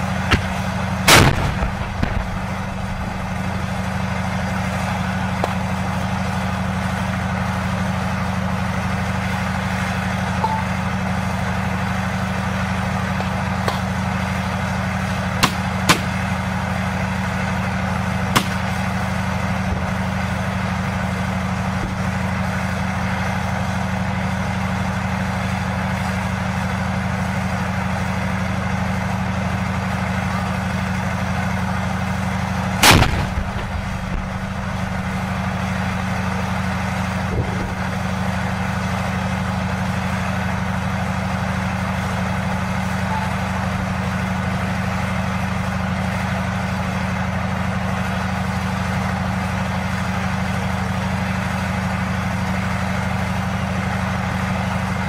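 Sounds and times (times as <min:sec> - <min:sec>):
diesel engine idling: 0:00.0 - 0:55.0
gunfire cracks: 0:00.2 - 0:03.9, 0:32.8 - 0:35.1.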